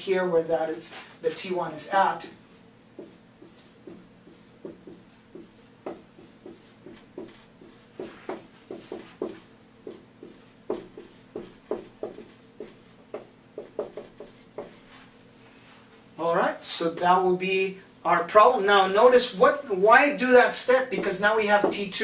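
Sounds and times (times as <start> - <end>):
marker squeaking and tapping on whiteboard: 3.0 - 15.0, 20.9 - 21.9.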